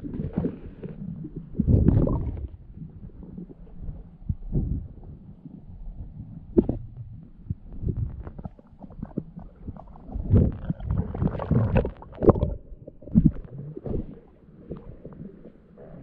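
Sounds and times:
underwater gurgling and rumbling: 0.0s - 16.0s
water sloshing: 7.7s - 16.0s.

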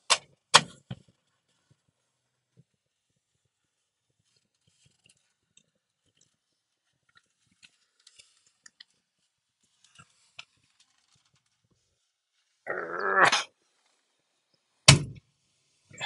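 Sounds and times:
rubber mat clicking and rustling: 9.8s - 11.7s.

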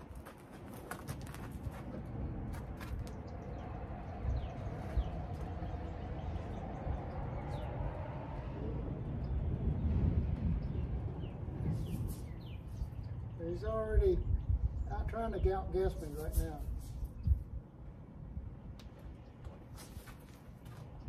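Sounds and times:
steady low rumble: 1.2s - 19.7s
high falling bird chirps: 9.0s - 13.4s.

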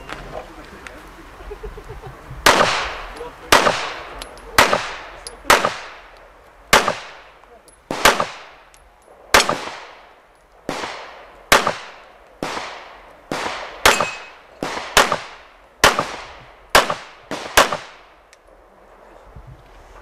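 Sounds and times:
pistol shots echoing: 2.4s - 18.2s.

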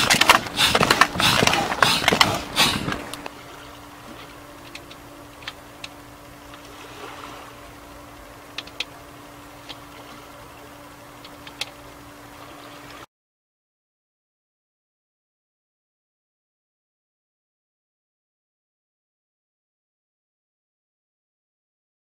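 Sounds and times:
air pump whooshing strokes: 0.0s - 3.3s
faint steady hum: 0.0s - 13.1s
small clicks: 4.6s - 6.7s, 8.5s - 8.9s, 11.2s - 11.8s.

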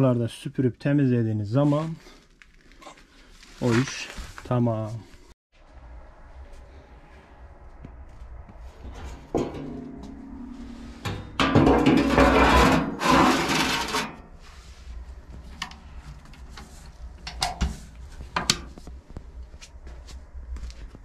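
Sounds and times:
scraping and sweeping boiler: 8.5s - 18.9s.

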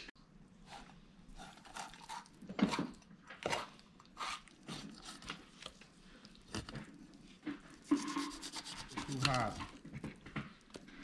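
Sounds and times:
knife filleting fish: 7.8s - 9.8s.

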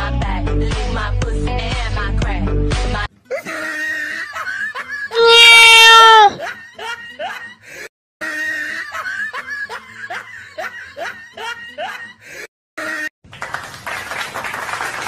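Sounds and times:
young animal crying: 5.1s - 6.4s.

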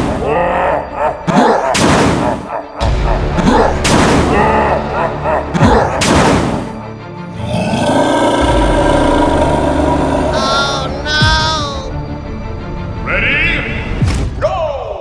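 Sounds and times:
music: 0.0s - 15.0s
cartoon booms: 1.7s - 2.5s, 3.4s - 4.6s
growling wavering voice-like sound: 7.4s - 11.9s.

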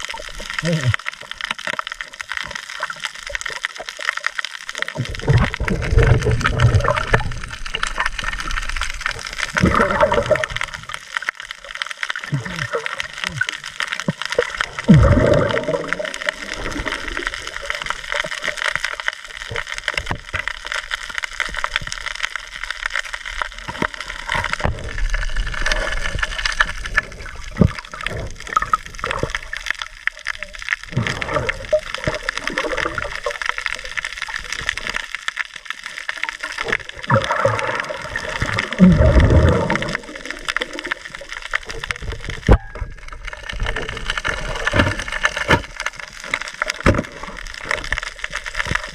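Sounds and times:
rushing gurgling water: 0.0s - 48.9s
underwater crackle of clicks: 0.0s - 48.9s.

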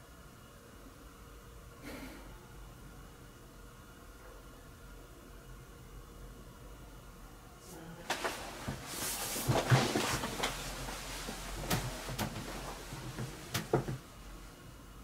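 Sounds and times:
chair knocks and clicks: 8.1s - 14.0s
rustling movement: 8.1s - 14.0s.

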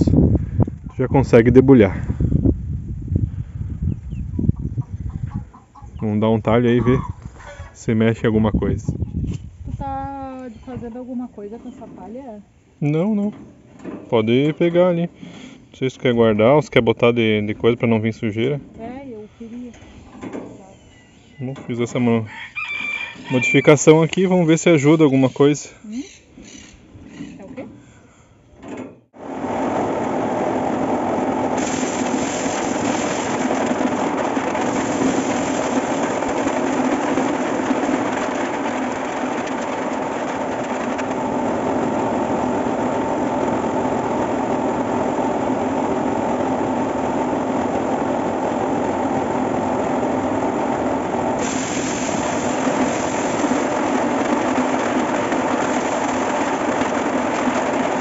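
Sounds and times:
corn sheller machine running: 29.2s - 58.0s.

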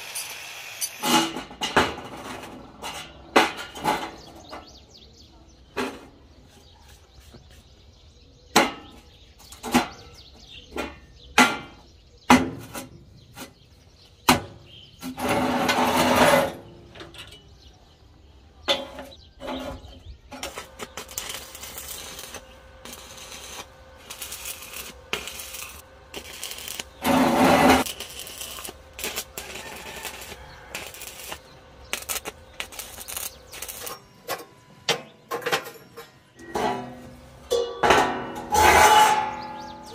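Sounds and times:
metal scraping: 14.9s - 17.3s, 18.7s - 34.6s, 35.3s - 39.9s.

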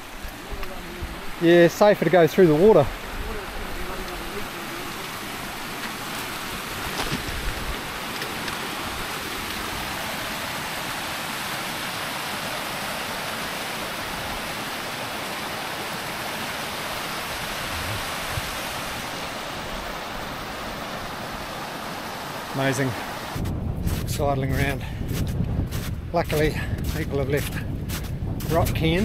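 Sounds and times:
steady rushing noise: 0.0s - 29.0s
footsteps on loose scree: 23.9s - 29.0s.

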